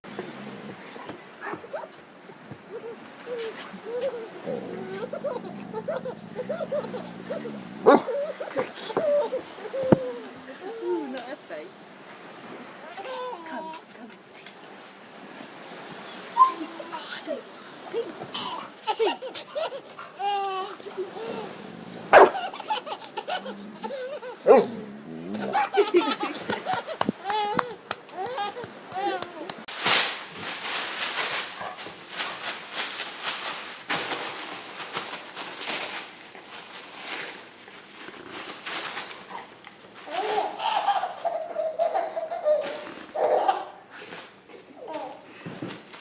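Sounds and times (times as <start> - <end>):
rustling and clattering: 0.1 - 10.4, 28.2 - 46.0
baby laughing: 2.7 - 11.2, 12.8 - 13.8, 18.3 - 29.7, 40.1 - 43.8
high baby voice: 9.0 - 11.2.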